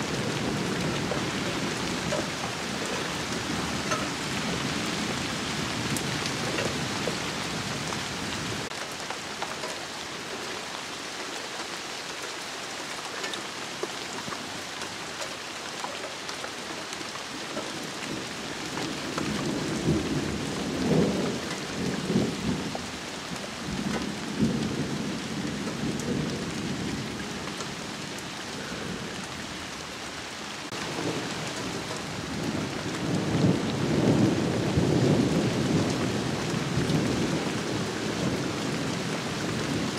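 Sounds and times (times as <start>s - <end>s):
rolling thunder: 0.0s - 8.8s, 30.7s - 39.9s
rain on trees and leaves: 0.0s - 39.9s.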